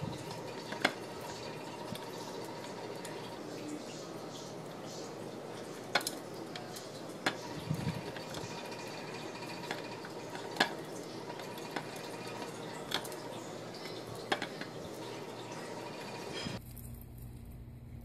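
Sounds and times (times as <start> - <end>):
claws clicking on plastic wheel: 5.9 - 14.8.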